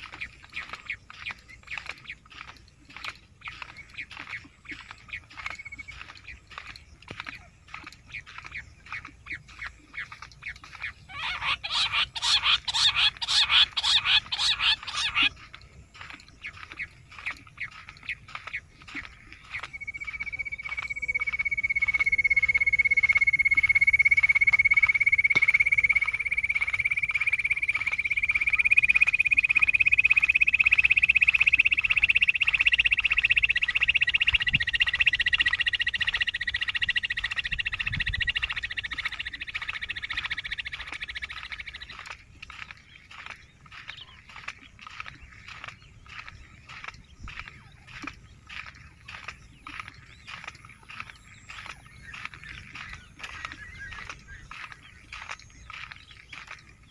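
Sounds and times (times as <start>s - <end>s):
rattling animal calls: 0.0s - 20.3s.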